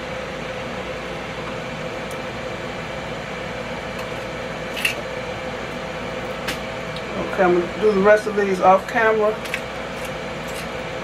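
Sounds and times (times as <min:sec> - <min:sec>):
air fryer fan humming: 0:00.0 - 0:11.0
kitchen shears snipping: 0:09.4 - 0:10.8.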